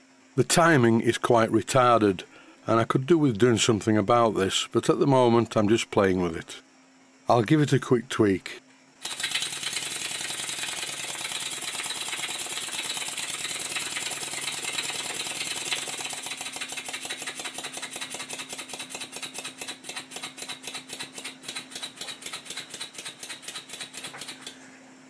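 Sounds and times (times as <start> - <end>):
small mechanical clatter: 9.0 - 24.6.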